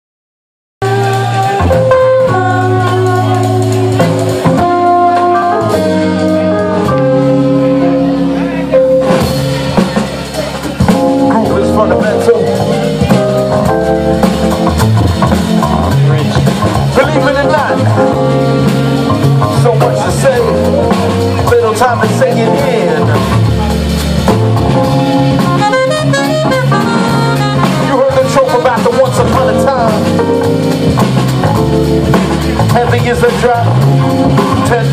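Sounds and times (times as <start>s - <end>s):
person singing into microphone: 0.8s - 4.1s
saxophone: 0.8s - 11.2s, 23.1s - 28.8s
drum kit: 0.8s - 34.9s
electric bass: 0.8s - 34.9s
electric guitars: 0.8s - 34.9s
keyboard chords: 0.8s - 34.9s.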